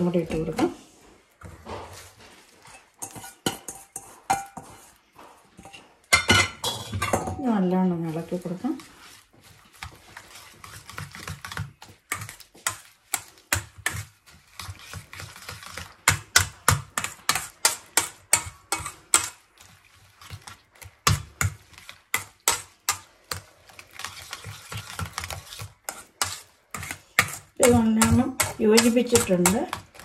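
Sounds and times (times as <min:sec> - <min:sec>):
whisk clicking in metal bowl: 0:09.8 - 0:19.4, 0:20.2 - 0:30.0.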